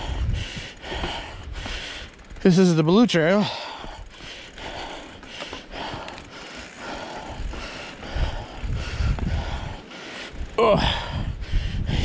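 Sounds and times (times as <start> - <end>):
bike frame rattling: 0.0 - 11.4.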